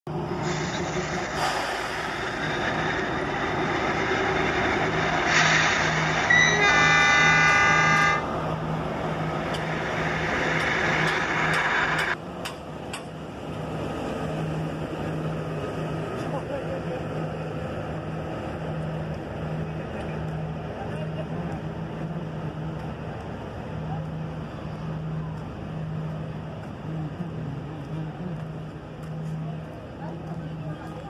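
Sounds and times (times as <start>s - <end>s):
diesel locomotive idling: 0.1s - 31.0s
locomotive horn blast: 5.2s - 8.3s.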